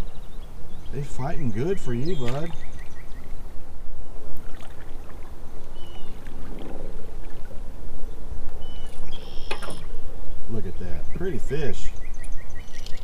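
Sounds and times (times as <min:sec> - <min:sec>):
bird chirp: 0:00.0 - 0:04.2, 0:05.7 - 0:06.3, 0:08.1 - 0:13.0.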